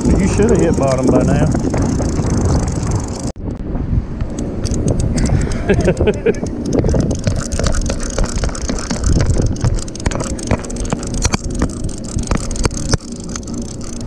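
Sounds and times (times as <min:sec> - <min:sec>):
boat engine idling: 0:05.3 - 0:14.0.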